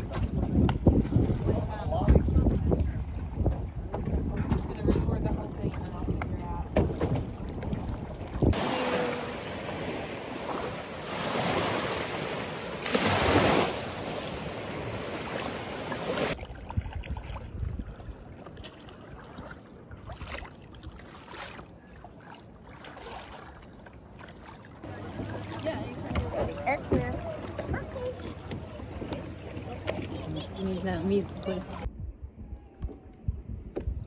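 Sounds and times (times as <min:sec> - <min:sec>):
wind on microphone: 0:00.0 - 0:18.3, 0:25.8 - 0:34.0
water rushing around kayak: 0:00.0 - 0:31.9
small splashes and drips: 0:16.3 - 0:26.2.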